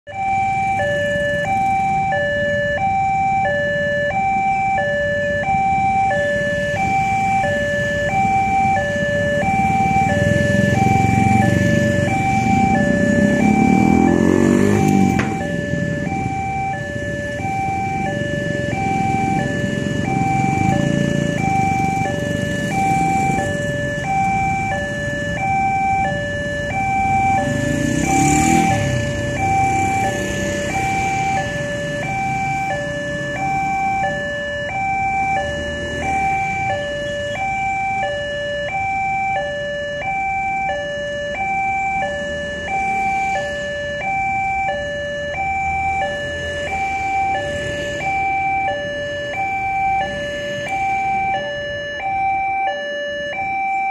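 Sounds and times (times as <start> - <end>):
two-tone crossing alarm: 0.0 - 53.9
light road traffic: 0.1 - 53.9
motorcycle passing: 5.5 - 37.8, 41.4 - 51.3.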